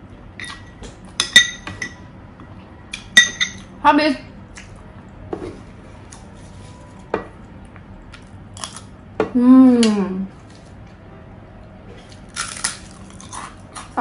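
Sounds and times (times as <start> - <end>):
person humming: 9.3 - 10.3.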